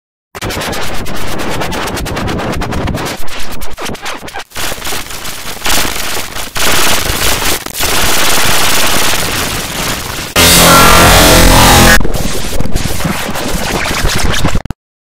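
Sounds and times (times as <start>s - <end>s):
crackling static: 0.5s - 14.8s
stuttering digital clicks: 4.5s - 14.8s.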